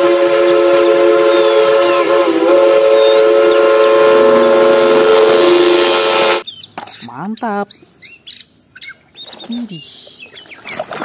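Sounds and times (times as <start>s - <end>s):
steam locomotive whistle blast: 0.0s - 6.4s.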